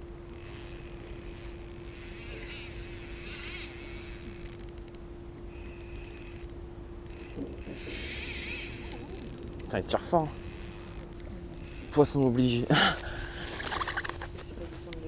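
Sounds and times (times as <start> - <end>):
quick reel clicks: 0.0 - 5.0, 5.6 - 12.0
fishing reel whirring: 0.0 - 14.2
steady low hum: 0.0 - 15.0.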